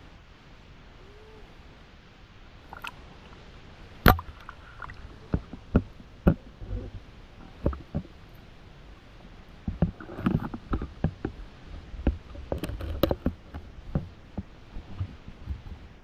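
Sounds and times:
water sloshing: 2.5s - 16.0s
splash into water: 2.6s - 3.0s
muffled underwater thumps: 4.0s - 8.2s, 9.6s - 16.0s.

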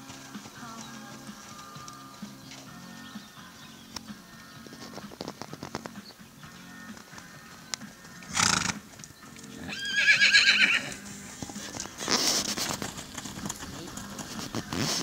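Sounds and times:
hoofbeats on sand: 0.0s - 15.0s
horse whinnying: 8.2s - 8.9s, 9.5s - 15.0s.

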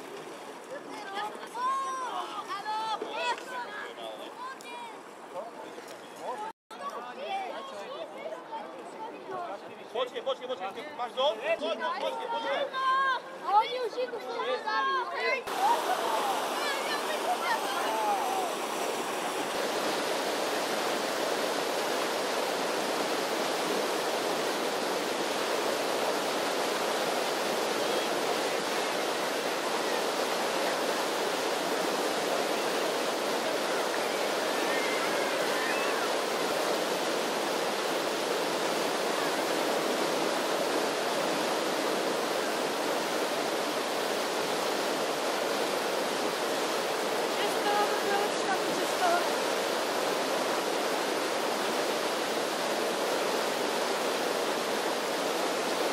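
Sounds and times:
rapids rushing: 15.5s - 55.9s.

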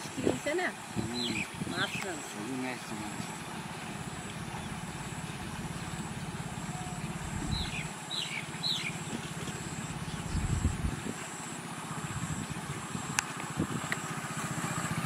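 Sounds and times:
small engine pulsing: 0.0s - 15.0s
bird chirping: 0.3s - 11.5s.

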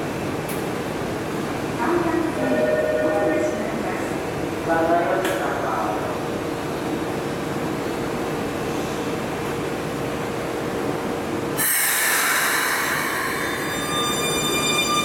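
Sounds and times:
electric train humming: 9.2s - 15.0s
compressed air hiss: 11.6s - 13.5s.

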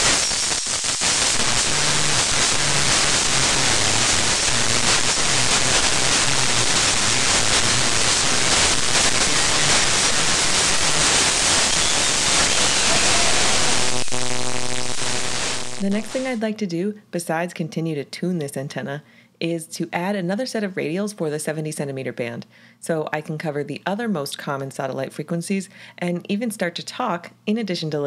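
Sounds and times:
radio static hiss: 0.0s - 16.4s.

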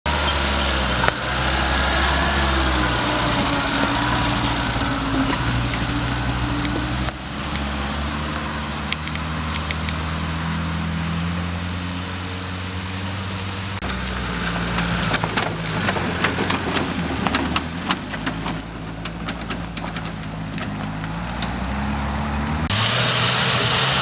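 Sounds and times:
off-road vehicle engine running: 0.0s - 24.0s
sharp clicks and knocks: 13.2s - 22.0s.

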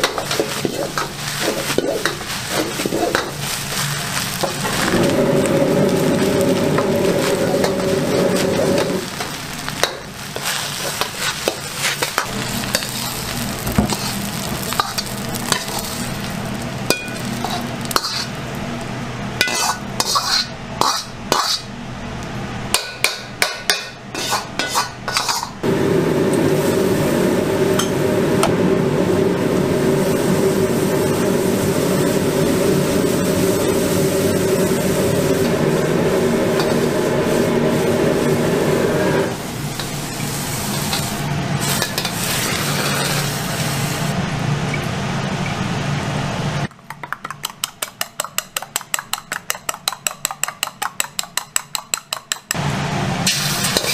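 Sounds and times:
ladle scraping rice in wok: 0.0s - 9.4s, 10.3s - 16.1s, 17.3s - 18.4s, 19.4s - 21.7s, 24.2s - 25.6s, 39.2s - 43.5s
gas burner roar: 0.0s - 46.7s, 52.5s - 53.9s
sizzling: 0.0s - 53.9s.

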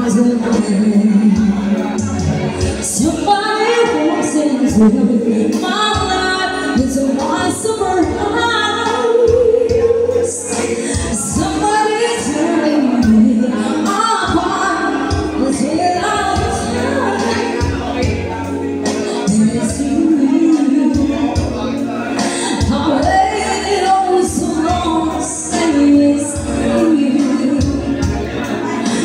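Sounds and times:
amplified backing music with bass: 0.0s - 29.0s
woman singing into a microphone: 0.0s - 29.0s.

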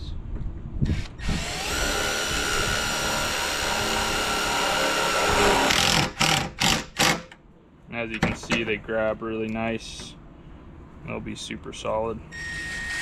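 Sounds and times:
cordless drill motor whine: 0.9s - 6.4s.

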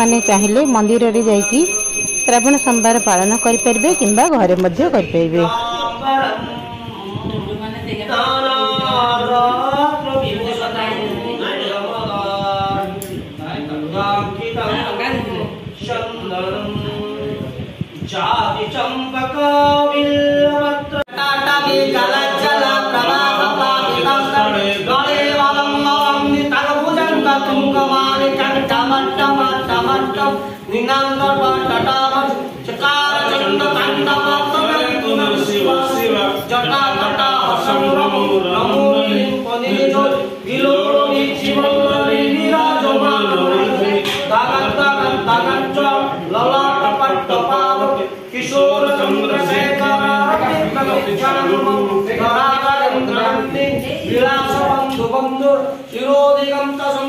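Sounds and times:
voices singing a hymn: 5.5s - 57.0s.

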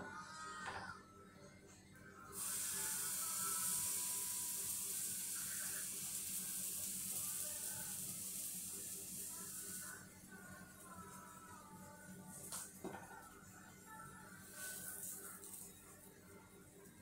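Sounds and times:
batter sizzling in frying pan: 2.4s - 11.0s, 14.4s - 16.1s.

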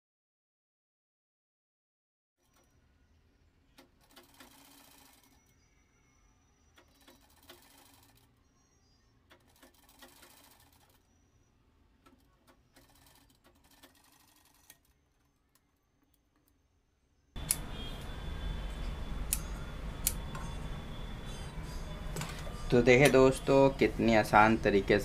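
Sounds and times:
sewing machine whirring: 2.4s - 16.6s, 17.4s - 25.0s
sharp clicks: 17.4s - 18.1s.

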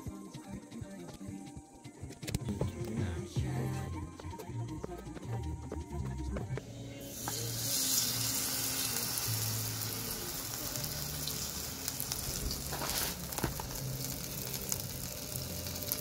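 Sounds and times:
squid sizzling in hot oil: 7.0s - 16.0s
oil popping: 7.2s - 16.0s.

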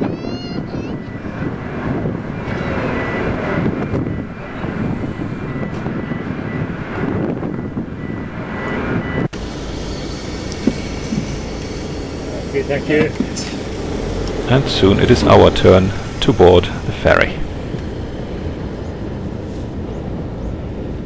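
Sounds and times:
ship engines droning: 0.0s - 21.0s
faint high whine: 7.5s - 19.8s.

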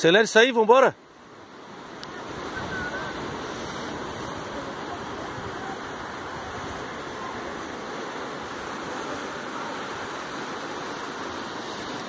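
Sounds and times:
surf rushing on beach: 0.0s - 12.0s
wind on microphone: 2.1s - 9.4s.

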